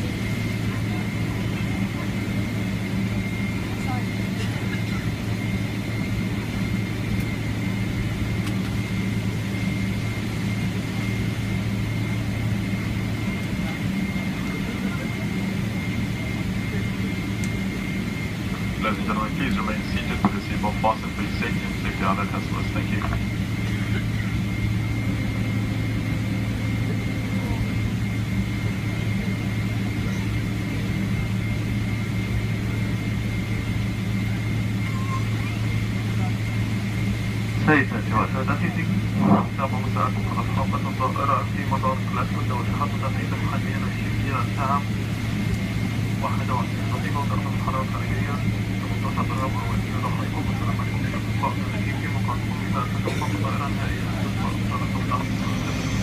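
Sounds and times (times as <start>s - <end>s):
airliner cabin drone: 0.0s - 56.0s
faint high whine: 0.0s - 56.0s
jet engine hum: 0.0s - 56.0s
faint high tone: 34.8s - 35.6s
rushing noise: 54.5s - 56.0s.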